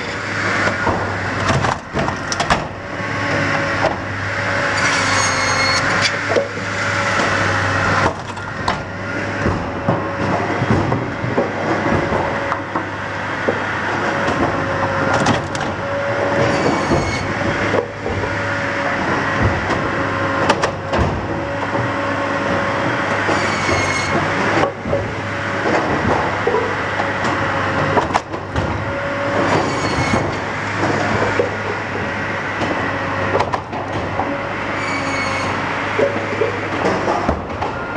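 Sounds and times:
firewood processor running: 0:00.0 - 0:37.9
high metallic squeals: 0:04.6 - 0:06.1, 0:16.4 - 0:17.4, 0:23.3 - 0:24.2, 0:29.5 - 0:30.2, 0:34.7 - 0:35.6.

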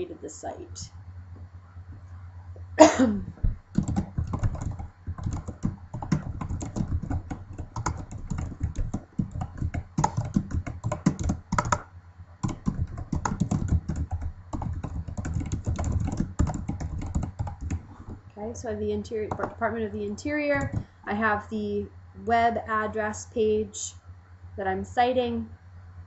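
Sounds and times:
computer keyboard typing: 0:03.4 - 0:17.9, 0:19.2 - 0:19.6, 0:20.5 - 0:20.9.

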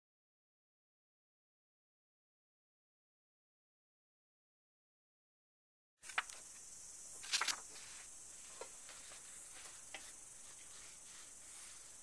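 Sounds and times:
steady high hiss: 0:06.0 - 0:12.0
paper rustling and scraping: 0:07.2 - 0:12.0.

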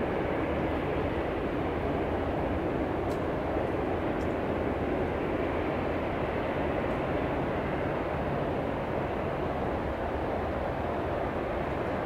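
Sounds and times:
jet engines at taxi power: 0:00.0 - 0:12.0.

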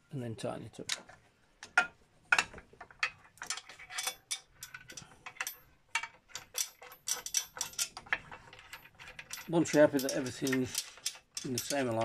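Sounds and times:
metallic clicks of hand tools: 0:02.4 - 0:12.0.

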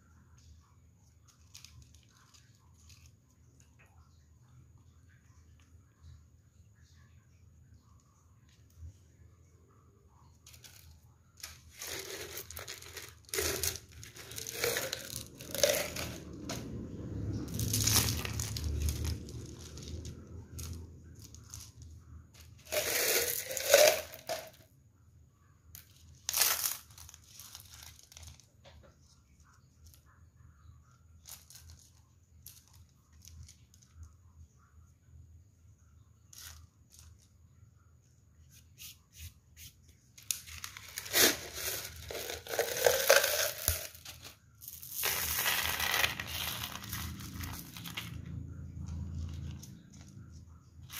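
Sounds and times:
pebbles clattering on a tabletop: 0:10.4 - 0:24.6, 0:25.8 - 0:29.0, 0:40.2 - 0:48.3.

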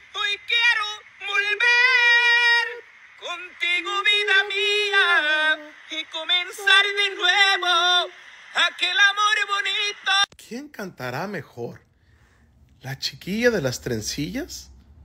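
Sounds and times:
high yodel-like singing voice: 0:00.0 - 0:10.3.

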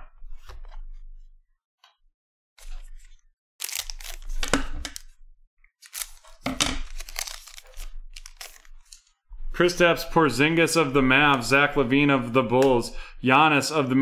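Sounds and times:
foil wrapper crinkling and tearing: 0:03.6 - 0:05.0, 0:05.8 - 0:09.0
scissors cutting: 0:05.8 - 0:06.3.

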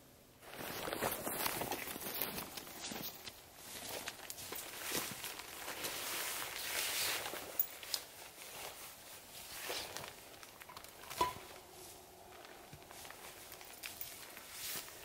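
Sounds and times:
footsteps on snow: 0:00.4 - 0:10.4, 0:11.2 - 0:15.0
backpack rustling and clicking: 0:00.5 - 0:05.7, 0:09.7 - 0:15.0.

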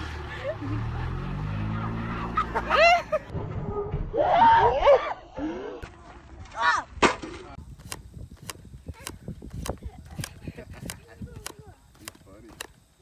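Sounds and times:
people shrieking and laughing: 0:00.3 - 0:03.3, 0:04.1 - 0:05.8.

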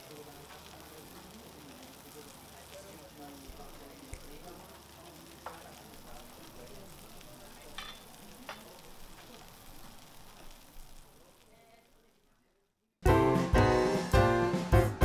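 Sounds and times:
food frying sizzle: 0:00.0 - 0:12.6
utensils clinking: 0:07.7 - 0:08.8.

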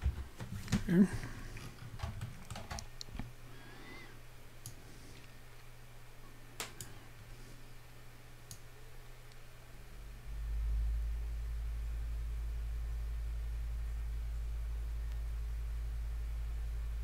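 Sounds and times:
low electrical hum: 0:00.0 - 0:17.0
low rumble: 0:10.0 - 0:17.0.

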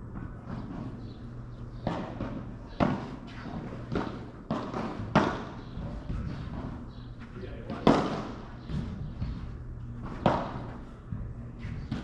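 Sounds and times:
steady low hum: 0:00.0 - 0:12.0
heavy echoing thumps: 0:03.9 - 0:12.0.

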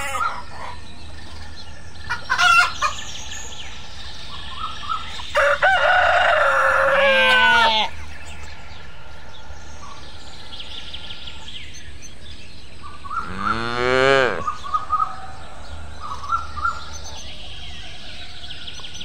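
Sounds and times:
rooster crowing: 0:05.3 - 0:07.9
cow mooing: 0:13.2 - 0:14.6.

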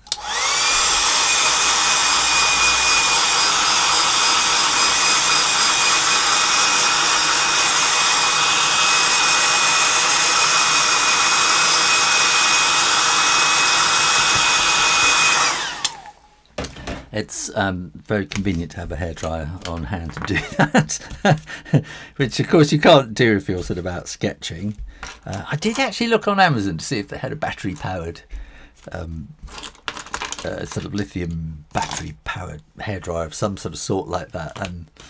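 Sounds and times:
hairdryer blowing: 0:00.0 - 0:17.0, 0:20.4 - 0:21.9.

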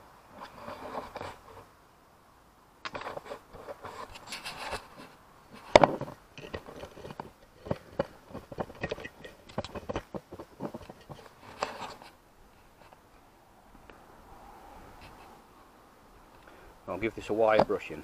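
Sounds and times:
metal horn clicks and knocks: 0:05.6 - 0:11.7.

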